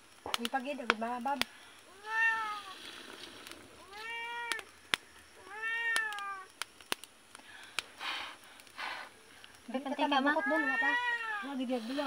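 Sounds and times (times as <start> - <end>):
cat meowing: 1.9 - 2.7, 3.8 - 4.7, 5.4 - 6.5, 10.4 - 11.5
sharp clicks: 5.9 - 7.9.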